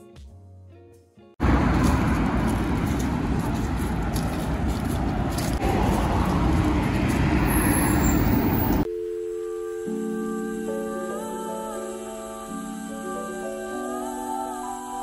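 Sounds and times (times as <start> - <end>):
cars passing on road: 1.4 - 8.9.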